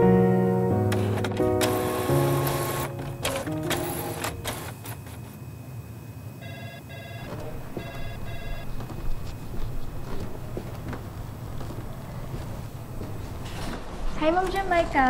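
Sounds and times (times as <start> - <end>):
telephone ringing: 0.9 - 5.4, 6.4 - 9.8.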